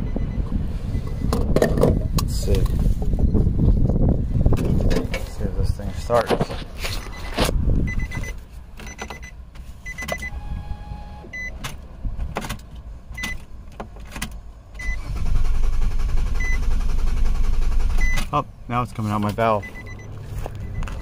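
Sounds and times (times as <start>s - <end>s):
short high beeps: 9.9s - 11.6s
engine cranking by starter: 14.3s - 18.3s.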